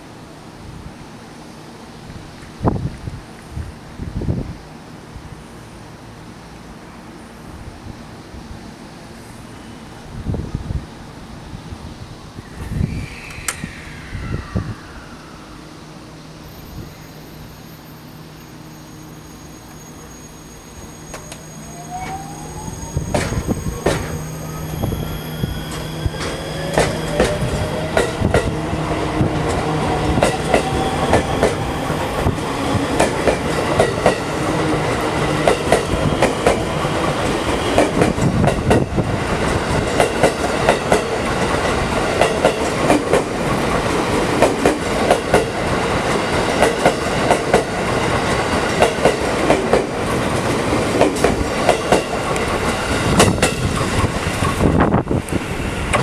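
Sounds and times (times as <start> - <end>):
train motor whine: 12.5 - 33.4
train wheels clacking over rail joints: 42.2 - 54.8.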